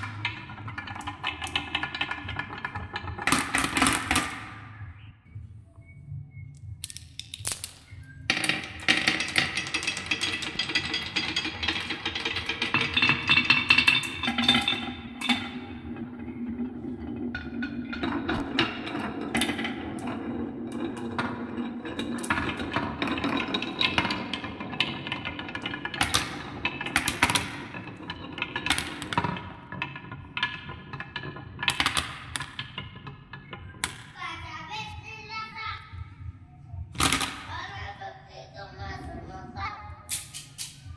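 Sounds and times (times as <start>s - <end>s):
marbles rolling on wooden run: 0.0s - 4.5s, 7.3s - 34.2s.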